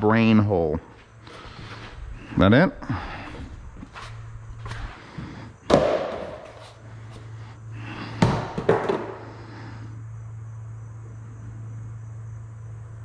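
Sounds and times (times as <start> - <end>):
steady low hum: 0.0 - 13.0
cardboard box knocking on floor: 8.2 - 9.1.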